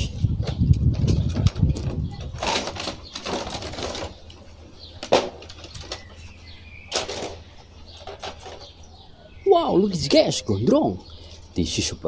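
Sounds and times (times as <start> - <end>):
plastic tray rustling and crackling: 0.5 - 4.4.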